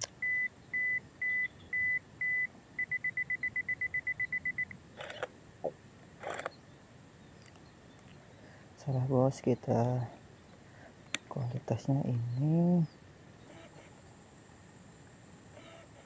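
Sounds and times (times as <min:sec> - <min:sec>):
camera shutter click: 0:05.0 - 0:05.3, 0:06.2 - 0:06.6
camera self-timer beeping: 0:06.2 - 0:06.6, 0:15.5 - 0:16.0.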